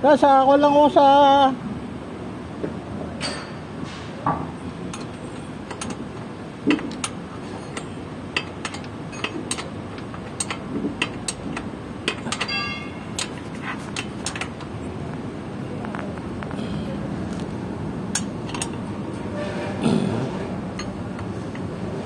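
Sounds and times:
steady background noise: 0.0 - 22.0
sharp clicks and metallic knocks: 4.2 - 14.8, 18.1 - 19.2, 20.7 - 21.8.

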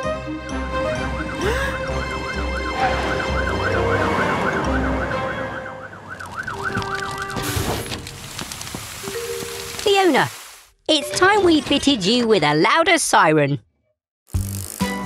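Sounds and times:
background music: 0.0 - 7.7
cartoon siren wailing: 1.0 - 7.4.

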